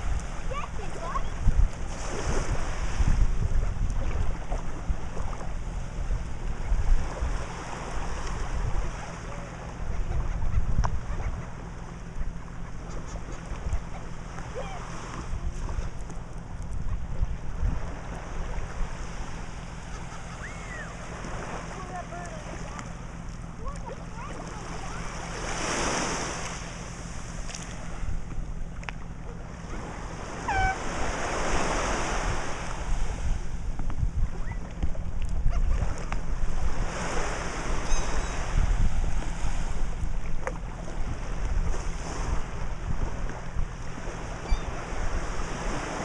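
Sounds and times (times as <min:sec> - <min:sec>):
surf washing onto sandy beach: 0:00.0 - 0:05.5, 0:23.6 - 0:28.1, 0:29.7 - 0:34.0, 0:40.9 - 0:46.0
wind rumbling on microphone: 0:00.0 - 0:46.0.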